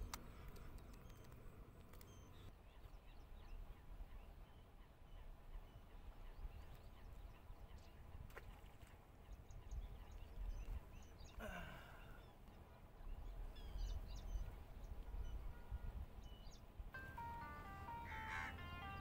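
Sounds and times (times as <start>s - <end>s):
bird gliding call: 17.0s - 19.0s.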